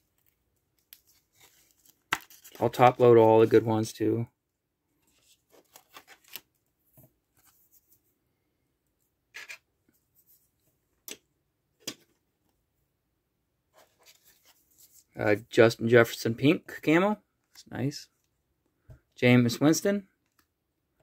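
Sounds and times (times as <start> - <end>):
cards rubbing and sliding: 1.0 - 3.0.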